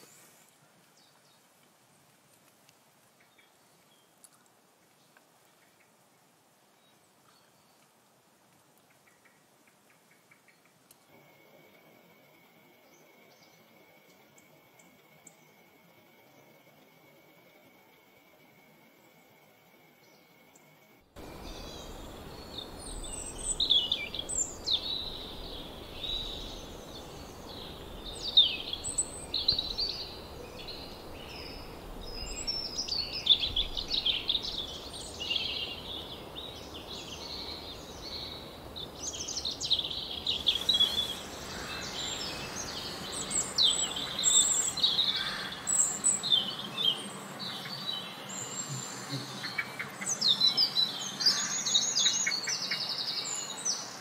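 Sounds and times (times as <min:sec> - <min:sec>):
background hiss: 0:00.0 - 0:54.0
birds chirping and singing: 0:20.1 - 0:54.0.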